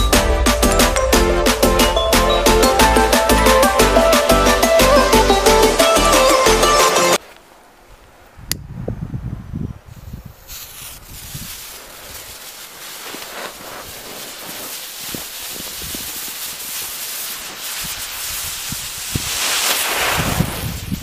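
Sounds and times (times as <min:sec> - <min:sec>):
burning fuse hissing and crackling: 0:10.0 - 0:21.0.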